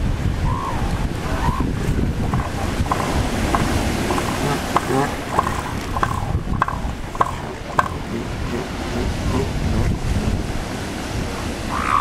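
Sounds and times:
surf: 0.0 - 12.0
wind: 0.0 - 12.0
elephant seal pulsing call: 0.4 - 9.6, 11.7 - 12.0.

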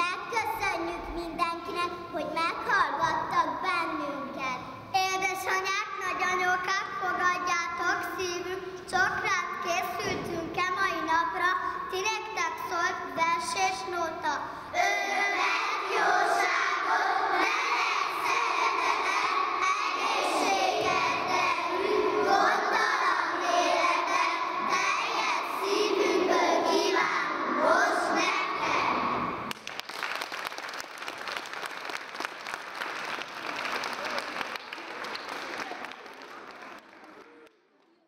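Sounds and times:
children singing in chorus: 14.8 - 29.4
audience applause: 29.5 - 37.5.

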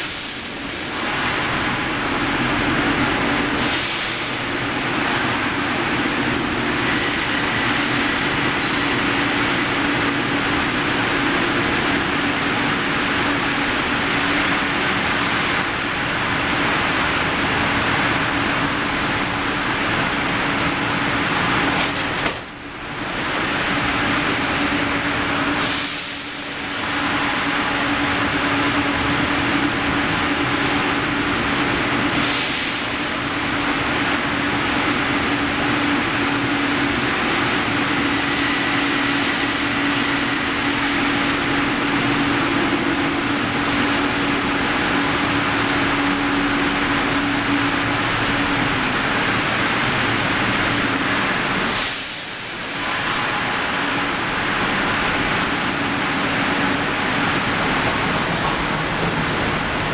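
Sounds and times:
rolling mill machine noise: 0.0 - 59.9
short high hisses: 3.6 - 4.3, 25.6 - 26.5.

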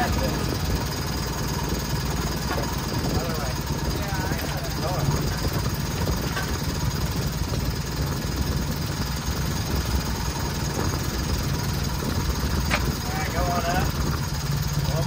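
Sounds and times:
engine idling: 0.0 - 15.0.

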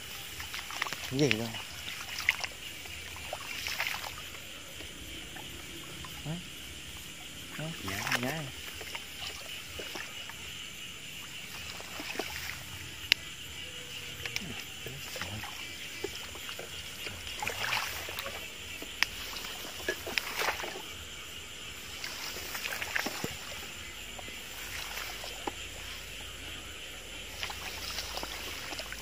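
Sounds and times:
footsteps wading through wet grass: 0.0 - 10.6, 11.2 - 13.1, 14.0 - 26.2, 27.1 - 29.0
night insects chirring: 0.0 - 29.0
small water splashes: 0.0 - 29.0.

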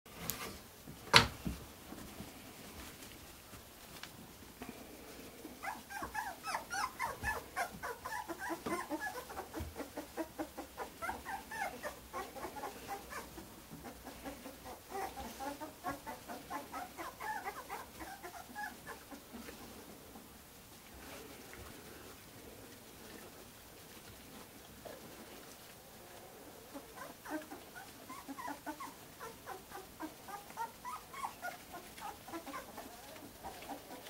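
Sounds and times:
puppies squeaking and whimpering: 5.6 - 19.2, 26.7 - 34.0.

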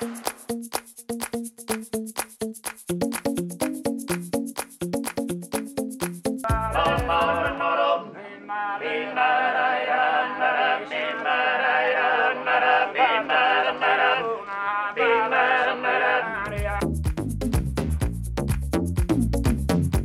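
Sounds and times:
men singing in close harmony: 6.5 - 16.8.

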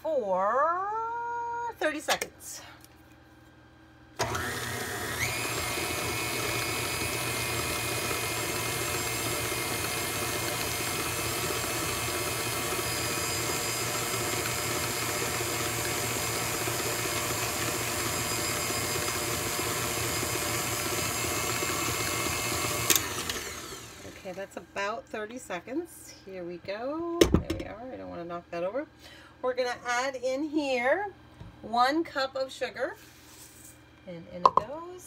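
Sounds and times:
electric mixer motor whine: 4.2 - 24.3.

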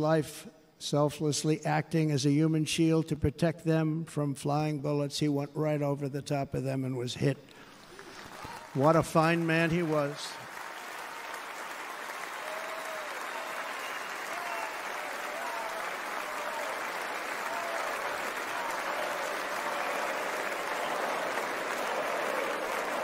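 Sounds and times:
crowd applauding: 7.6 - 23.0.

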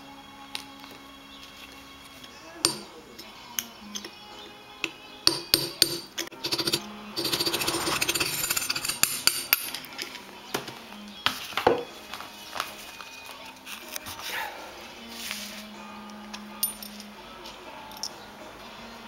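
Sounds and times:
steel tools clinking on metal gears: 5.3 - 10.2, 16.6 - 17.1.

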